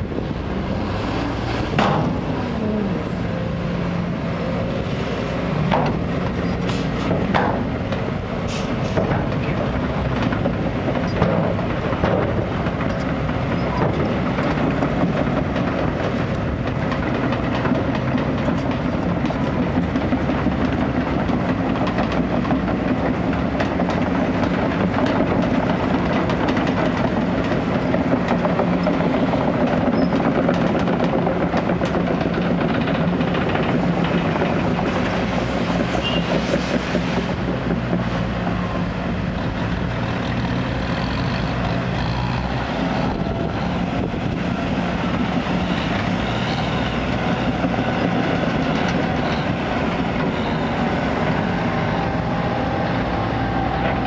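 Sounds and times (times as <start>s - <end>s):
excavator diesel engine running: 0.0s - 54.0s
steel tracks clanking: 0.0s - 54.0s.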